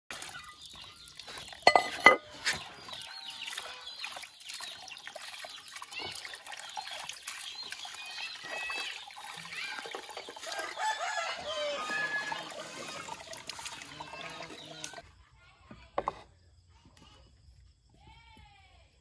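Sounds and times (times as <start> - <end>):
running water stream: 0.1 - 15.0
water splashing in basin: 0.1 - 15.0.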